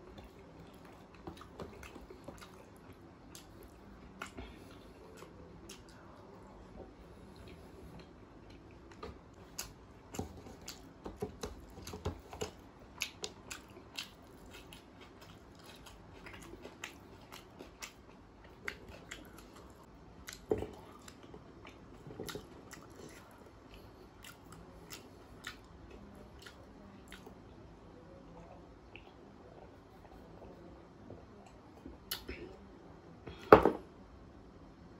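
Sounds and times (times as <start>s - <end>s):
chewing with wet mouth clicks: 0.1s - 6.2s, 7.3s - 27.4s, 28.8s - 29.2s, 31.4s - 32.3s.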